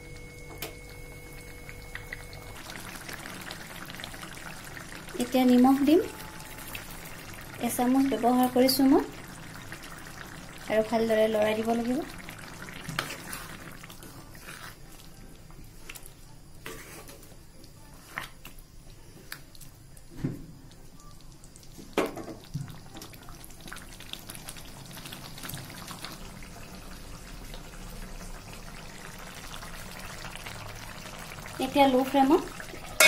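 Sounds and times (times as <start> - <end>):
thick gravy sloshing: 12.2 - 15.0.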